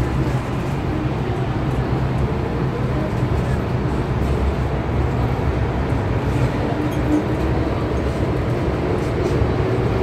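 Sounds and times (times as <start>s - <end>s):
train wheels rumbling on rail: 0.0s - 10.0s.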